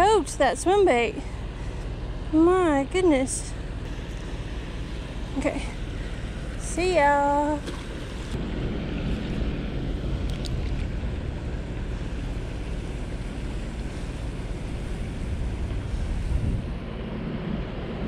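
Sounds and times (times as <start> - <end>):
wind buffeting microphone: 8.0 - 18.0.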